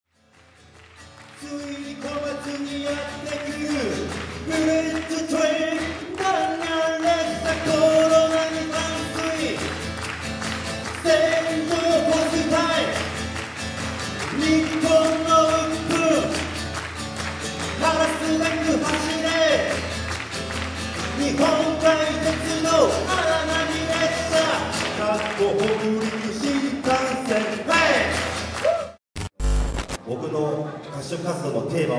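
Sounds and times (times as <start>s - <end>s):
acoustic guitar: 0.1s - 29.8s
man singing: 1.3s - 9.7s, 10.9s - 13.1s, 14.2s - 16.5s, 21.2s - 28.2s.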